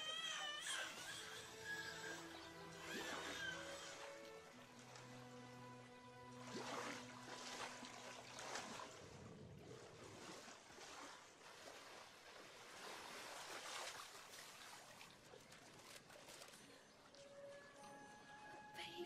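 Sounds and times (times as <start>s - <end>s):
river water splashing and lapping: 0.0s - 19.0s.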